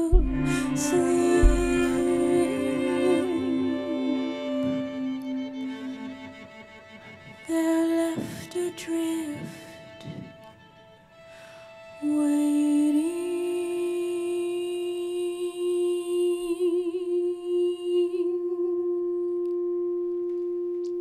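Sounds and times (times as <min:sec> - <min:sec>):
sustained hum-like ensemble tone: 0:00.0 - 0:07.7
fainter steady higher tones: 0:00.0 - 0:14.1.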